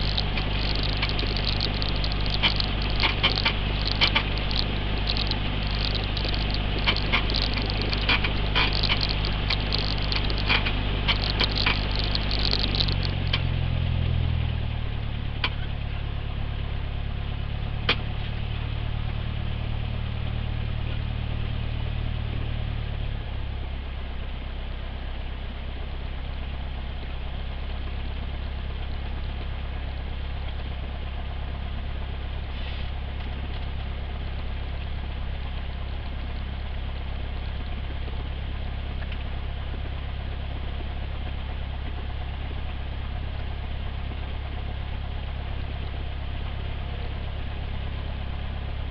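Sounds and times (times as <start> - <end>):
sharp clicks: 0.0 - 13.4.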